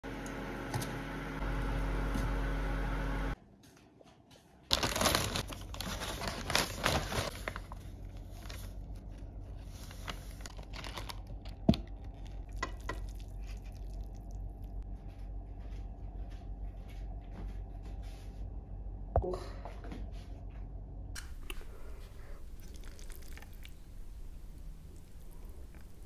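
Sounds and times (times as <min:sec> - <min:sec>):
paper and cardboard crinkling: 0:04.6 - 0:13.8
pot of water boiling: 0:21.6 - 0:26.0.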